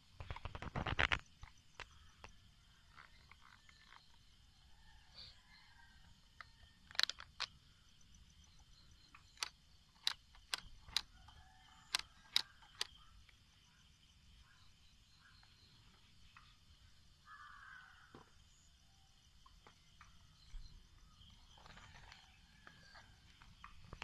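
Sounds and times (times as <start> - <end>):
insects chirring: 0.0 - 24.0
sharp clicks: 6.4 - 7.6, 9.1 - 13.4.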